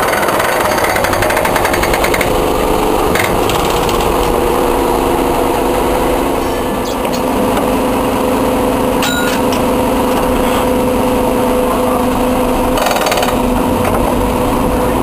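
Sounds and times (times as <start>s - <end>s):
tram rattling clatter: 0.0s - 7.9s, 11.5s - 14.2s
tram motor hum: 0.0s - 15.0s.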